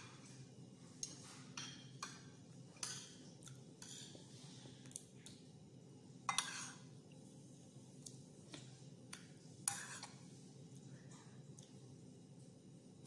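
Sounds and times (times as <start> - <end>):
cutlery scraping on plate: 1.0 - 3.2, 3.8 - 4.2, 6.3 - 6.8, 9.6 - 10.2.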